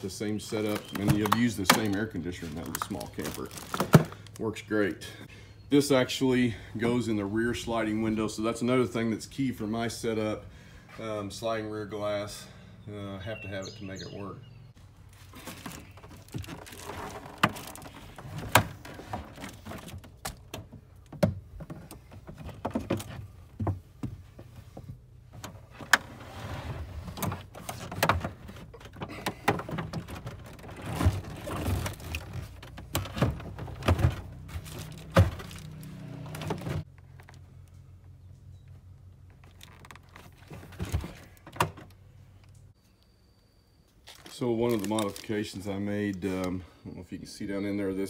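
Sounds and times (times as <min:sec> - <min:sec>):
scraping and rustling: 0:15.0 - 0:20.8, 0:21.5 - 0:37.4.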